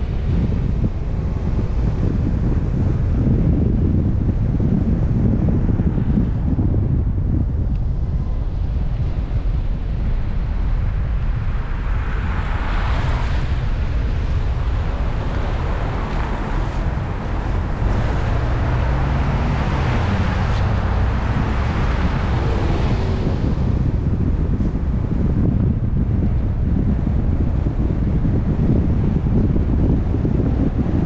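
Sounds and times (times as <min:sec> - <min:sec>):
wind rumbling on microphone: 0:00.0 - 0:31.0
vehicle passing on snowy street: 0:10.6 - 0:31.0.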